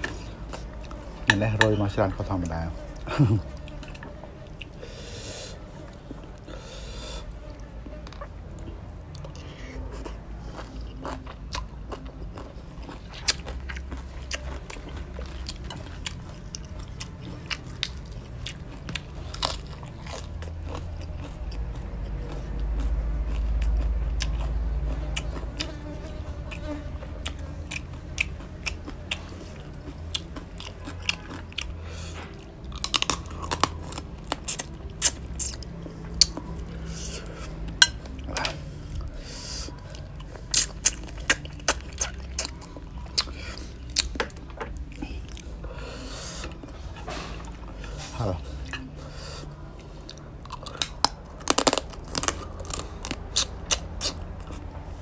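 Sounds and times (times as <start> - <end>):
chewing crab shell crunches: 27.7 - 36.7, 50.1 - 54.7.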